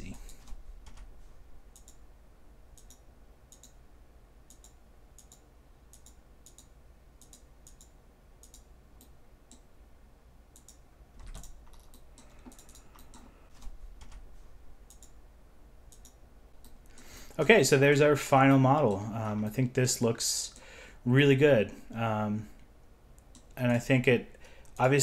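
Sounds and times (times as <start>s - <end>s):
faint computer mouse clicks: 1.8s - 2.0s, 2.8s - 3.8s, 4.5s - 9.7s, 11.4s - 13.7s, 14.9s - 15.2s, 15.9s - 17.0s.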